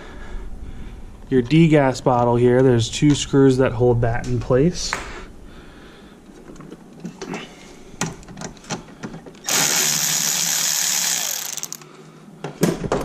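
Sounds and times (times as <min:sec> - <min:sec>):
power tool running: 0:09.5 - 0:11.8
tool clicking on screw: 0:09.5 - 0:11.8.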